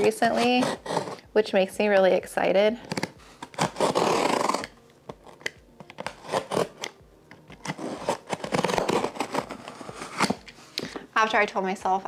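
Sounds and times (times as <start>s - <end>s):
box cutter slicing tape: 0.0s - 1.2s, 2.9s - 7.0s, 7.6s - 10.5s.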